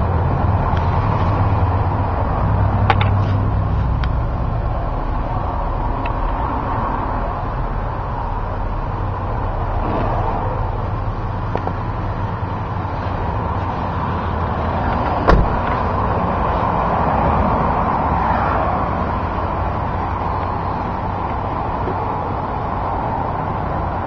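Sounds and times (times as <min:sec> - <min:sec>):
car engine idling: 0:01.4 - 0:18.2, 0:18.8 - 0:24.0.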